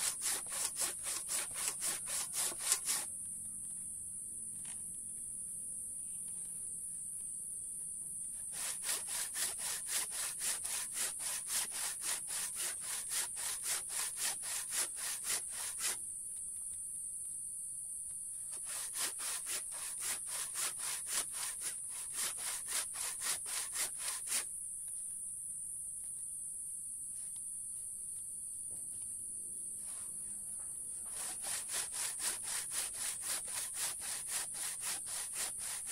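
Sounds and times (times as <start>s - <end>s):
handsaw cutting hard wood: 0.0s - 3.1s, 8.4s - 16.0s, 18.5s - 24.4s, 31.0s - 35.9s.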